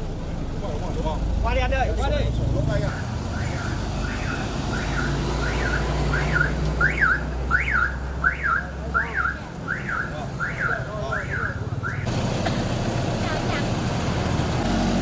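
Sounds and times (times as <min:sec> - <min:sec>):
vehicle alarm chirping: 0:02.9 - 0:12.1.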